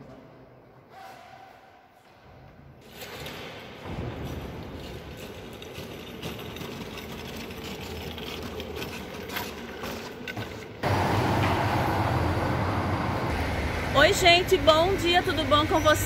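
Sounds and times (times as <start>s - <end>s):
low traffic rumble: 10.8s - 16.0s
street bustle: 10.8s - 16.0s.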